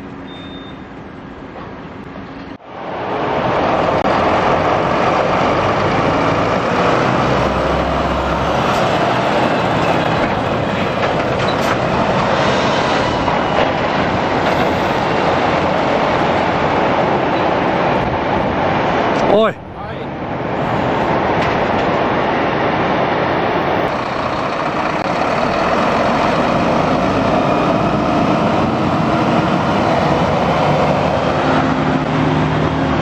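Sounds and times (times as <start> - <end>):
truck diesel engine running: 23.7 - 33.0.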